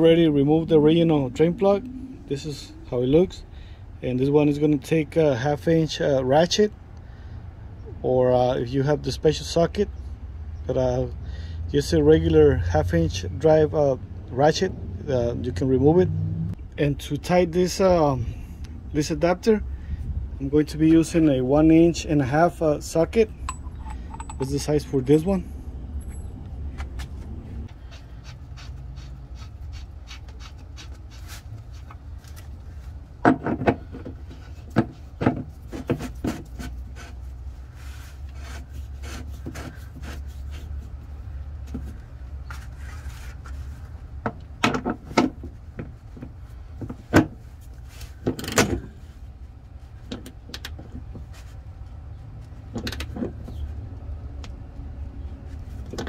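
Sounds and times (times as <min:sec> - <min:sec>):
steady low hum: 0:00.0 - 0:08.0, 0:11.9 - 0:42.4
rubbing and handling metal parts: 0:20.9 - 0:25.4, 0:26.0 - 0:53.7.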